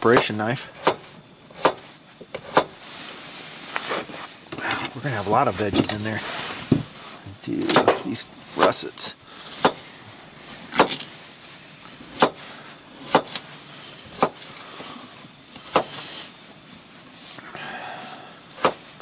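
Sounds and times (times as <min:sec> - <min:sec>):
knife chopping on plastic board: 0:00.1 - 0:01.8, 0:07.6 - 0:08.8, 0:09.6 - 0:09.8, 0:13.1 - 0:13.4, 0:14.2 - 0:14.5, 0:15.7 - 0:16.0.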